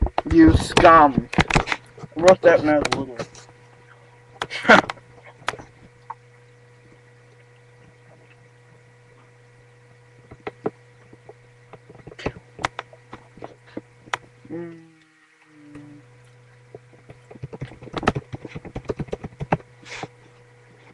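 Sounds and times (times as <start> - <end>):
electrical hum: 0.0 - 20.9
faint clicks and knocks: 6.8 - 14.5, 15.7 - 20.9.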